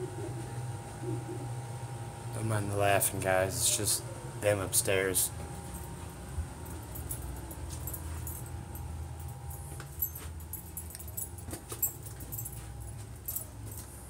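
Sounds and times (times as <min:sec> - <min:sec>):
steady low hum: 0:00.0 - 0:14.0
dog collar tags jingling: 0:06.6 - 0:13.9.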